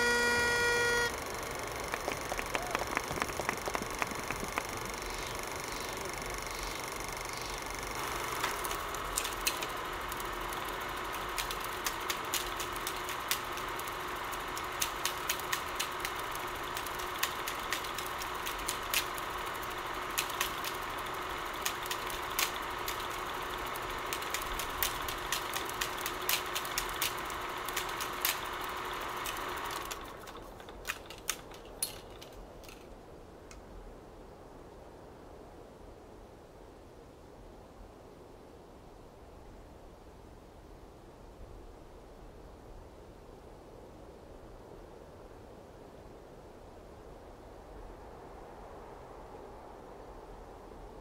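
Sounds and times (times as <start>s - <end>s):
crackling clicks: 0.0s - 33.6s
steady hum: 0.0s - 34.2s.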